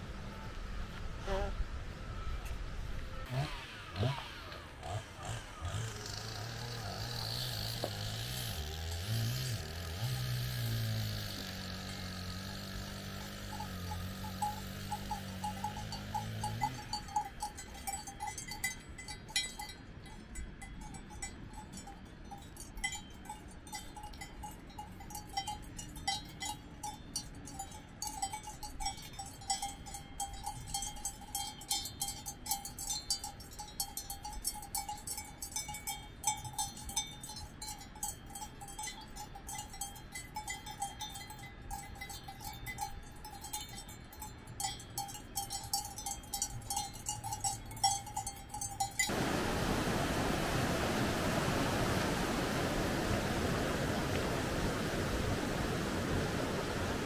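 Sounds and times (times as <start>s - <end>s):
cowbells clanking: 4.8s - 49.2s.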